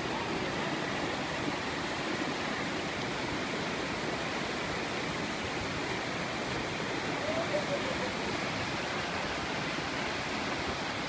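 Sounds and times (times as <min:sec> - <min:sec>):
river rapids rushing: 0:00.0 - 0:11.0.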